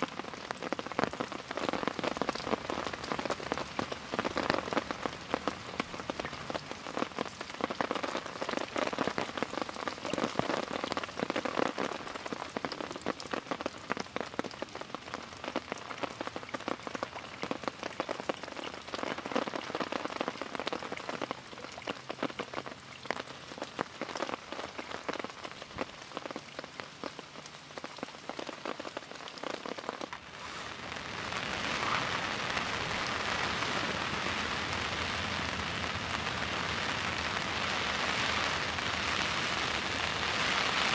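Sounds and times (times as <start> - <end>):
steady rain: 0.0 - 40.9.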